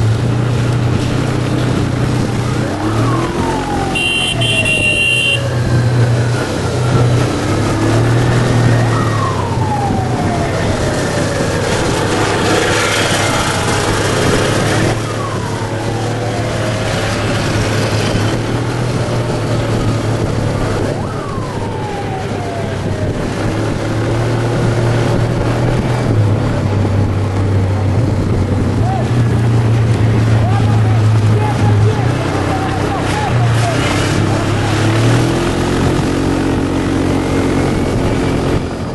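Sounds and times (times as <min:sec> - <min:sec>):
motorcycle engines droning: 0:00.0 - 0:38.9
engine notes falling in pitch: 0:02.2 - 0:18.5.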